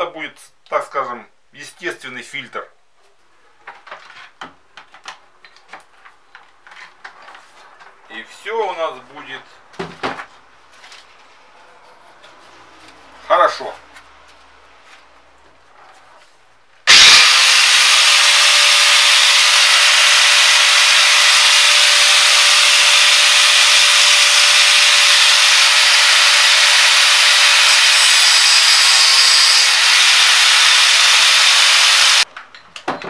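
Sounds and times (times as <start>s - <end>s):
angle grinder cutting hose: 16.9s - 32.3s.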